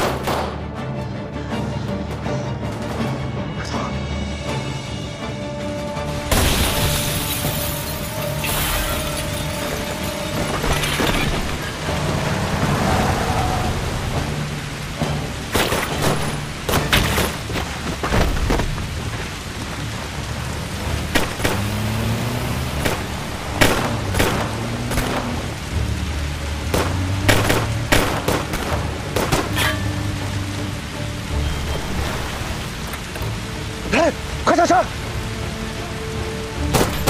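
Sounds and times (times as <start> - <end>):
dramatic music score: 0.0 - 37.0
heavy rain: 0.0 - 37.0.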